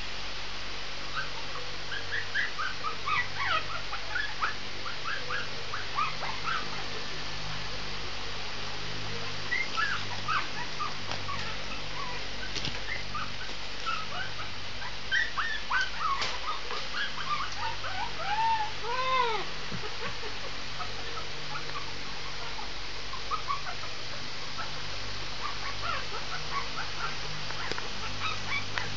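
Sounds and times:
puppy whining and yipping: 1.1s - 6.8s, 9.5s - 20.1s, 20.8s - 23.9s, 25.4s - 28.9s
puppy howling: 9.5s - 19.5s.

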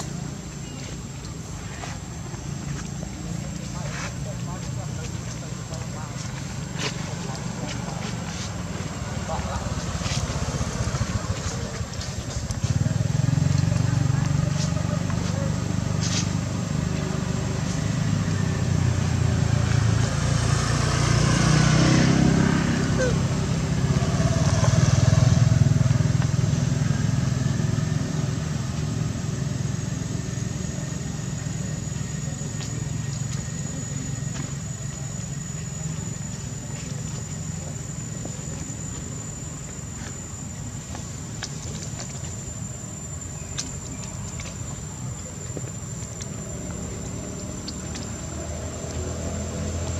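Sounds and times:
engine running: 0.0s - 49.9s
high-pitched insect drone: 12.9s - 49.9s.

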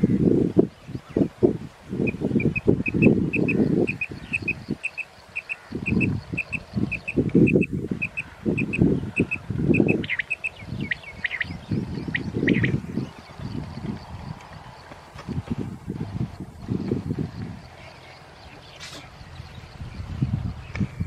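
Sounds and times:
wind buffeting microphone: 0.0s - 21.0s
quail chirping: 2.1s - 13.2s.

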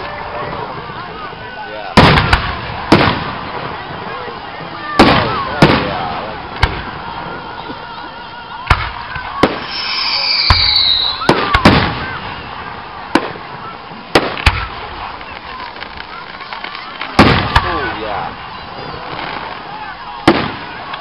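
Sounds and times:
firework shells bursting: 8.7s - 18.0s
high falling whistle: 9.6s - 11.6s.

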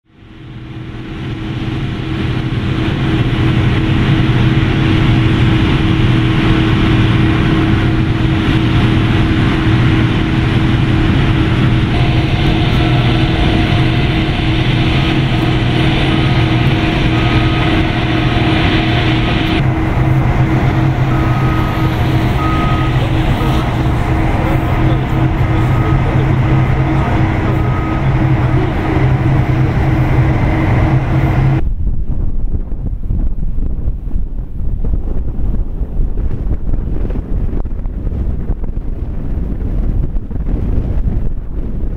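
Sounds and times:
ramp machinery whine and rumble: 0.0s - 41.9s
vehicle short beeps: 11.9s - 19.5s, 20.6s - 31.6s.

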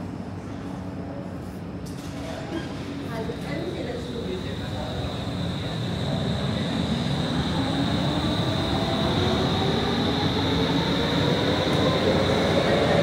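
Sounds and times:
metro train pulling away: 2.7s - 13.0s
motor whine rising in pitch: 3.3s - 13.0s.

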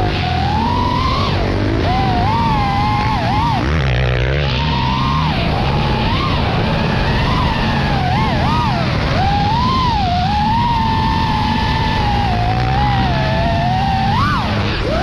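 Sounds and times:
drone propellers whining: 0.0s - 15.0s.

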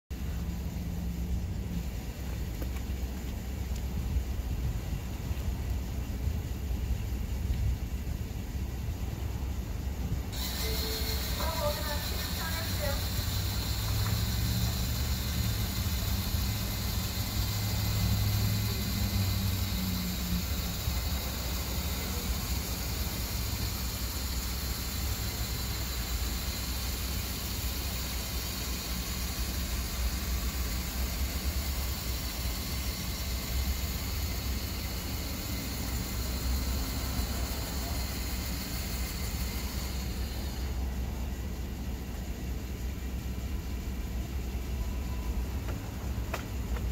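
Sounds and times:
electric motor humming: 10.4s - 40.7s.

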